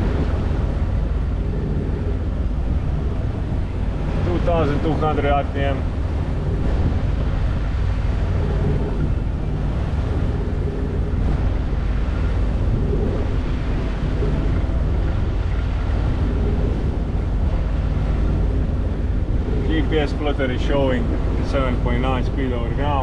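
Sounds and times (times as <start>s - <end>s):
marine diesel engine running: 0.0s - 23.0s
water rushing along hull: 0.0s - 23.0s
wind buffeting microphone: 0.0s - 23.0s.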